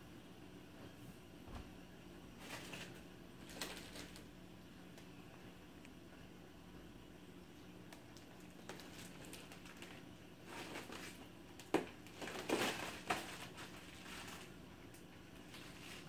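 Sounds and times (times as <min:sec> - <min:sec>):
faint steady hum: 0:00.0 - 0:16.0
plastic bag crinkling: 0:02.4 - 0:04.3, 0:08.0 - 0:16.0.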